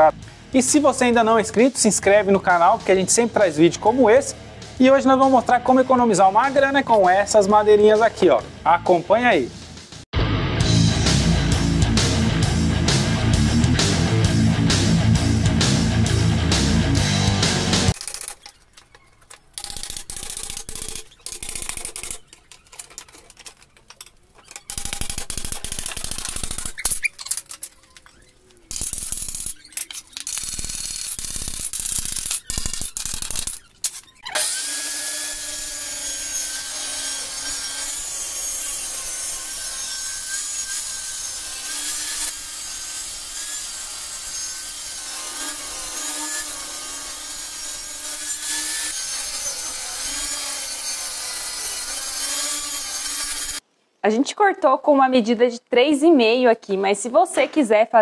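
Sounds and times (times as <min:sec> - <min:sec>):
table saw ripping wood: 0:17.8 - 0:53.6.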